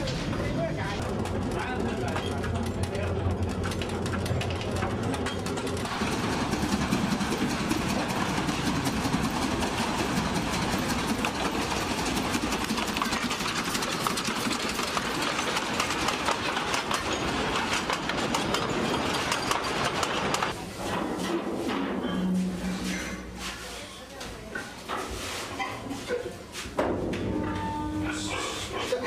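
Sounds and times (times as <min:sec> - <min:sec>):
wheels clicking over rails: 0:00.0 - 0:22.1
steam train passing: 0:05.8 - 0:20.5.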